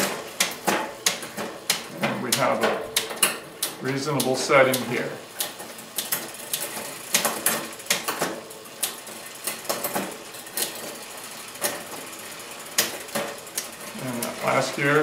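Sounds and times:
bicycle chain running over gears: 0:03.8 - 0:15.0.

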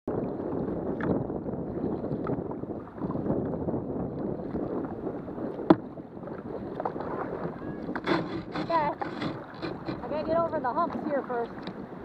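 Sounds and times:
water moving past hull: 0:00.1 - 0:12.0
wind on microphone: 0:00.1 - 0:12.0.

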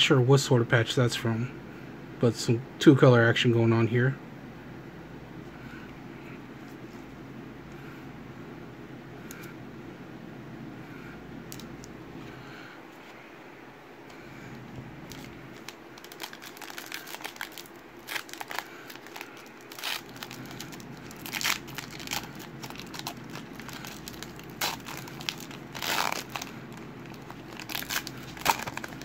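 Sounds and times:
foil wrapper being torn open: 0:15.1 - 0:29.0.

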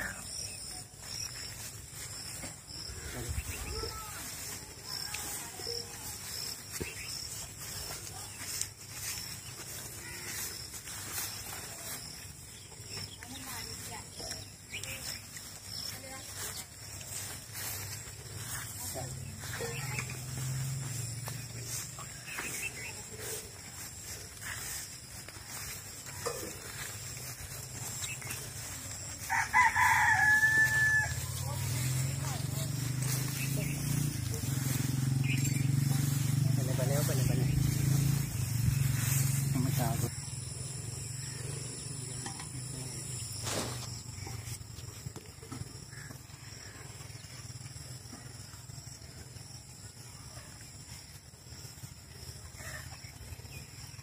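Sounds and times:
faint animal and bird calls: 0:00.0 - 0:54.0
rooster crowing: 0:29.2 - 0:32.4.

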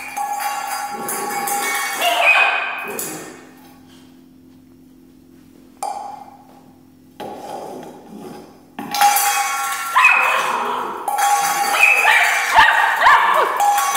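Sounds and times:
metal dog bowl scraping on tile: 0:00.0 - 0:04.0, 0:07.2 - 0:13.9.

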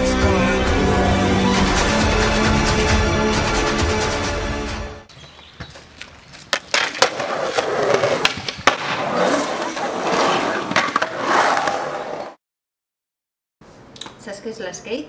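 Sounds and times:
skateboard wheels rolling on concrete: 0:05.1 - 0:12.4
skateboard clacks: 0:06.5 - 0:09.2.

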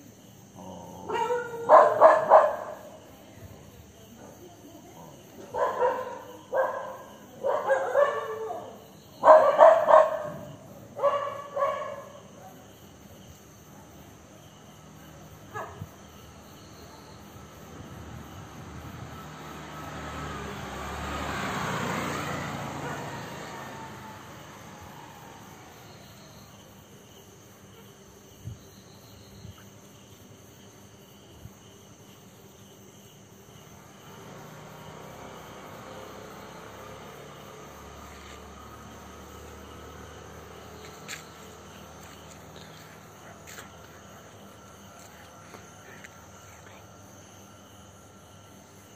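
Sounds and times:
dog barking: 0:00.8 - 0:03.0, 0:05.4 - 0:12.7, 0:15.5 - 0:15.9, 0:22.7 - 0:23.7.

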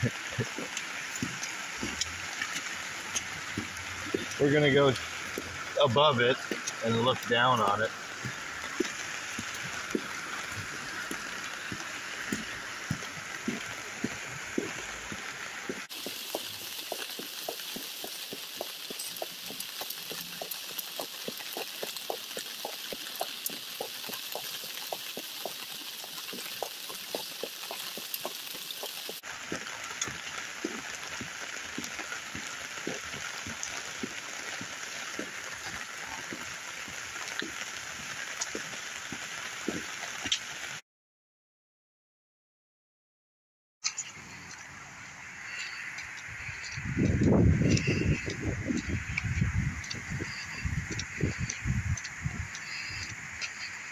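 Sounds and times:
floodwater rushing: 0:00.0 - 0:40.8, 0:43.9 - 0:53.9
rain drops ticking: 0:00.0 - 0:40.8, 0:43.9 - 0:53.9.

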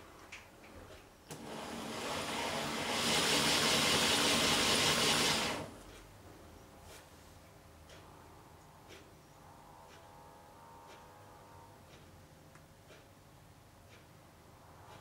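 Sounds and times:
model tram motor whining: 0:01.3 - 0:05.8.

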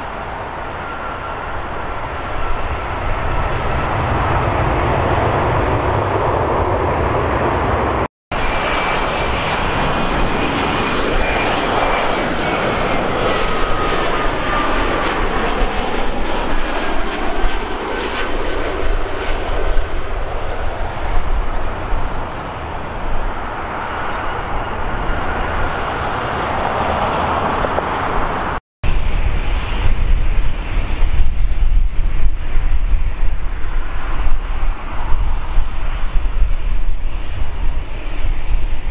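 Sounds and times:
jet engines roaring past: 0:00.0 - 0:38.9.

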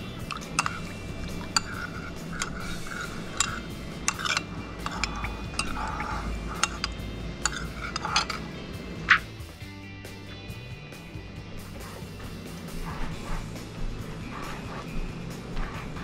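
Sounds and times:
low steady hum: 0:00.0 - 0:09.4
spoon clinking against ceramic bowl: 0:00.1 - 0:08.5.

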